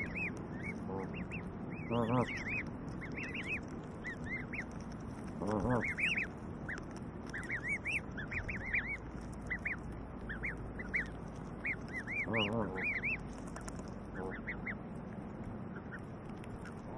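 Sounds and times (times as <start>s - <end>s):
adult goose call: 0.0s - 4.6s, 5.4s - 13.2s, 14.1s - 14.8s
goslings peeping: 0.0s - 16.9s.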